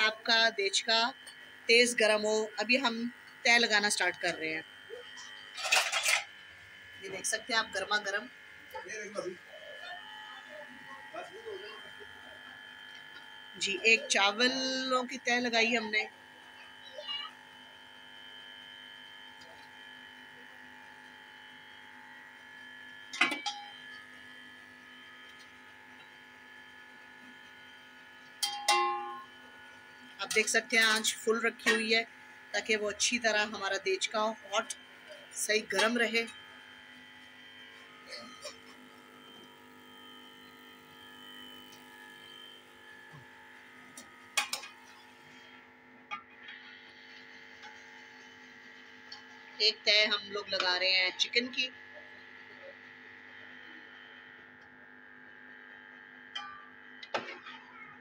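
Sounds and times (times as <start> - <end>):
steady background hum: 0.0 - 16.2
steady hum: 0.0 - 17.3, 28.4 - 53.8
spoon clinking on metal pots: 28.4 - 29.2.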